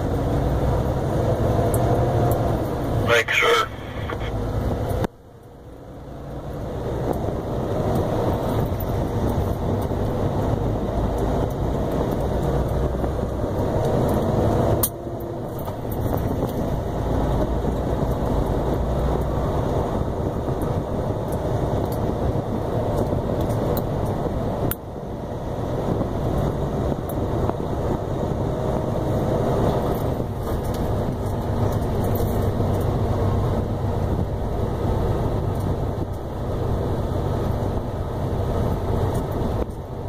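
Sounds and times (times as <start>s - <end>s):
truck engine and road noise in cab: 0.0s - 40.0s.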